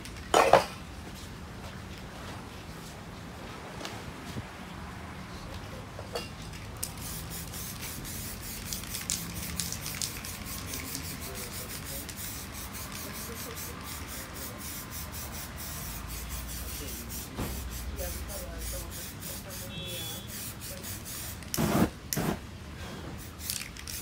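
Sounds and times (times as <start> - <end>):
spray paint can hissing: 6.6 - 22.4, 23.2 - 24.0.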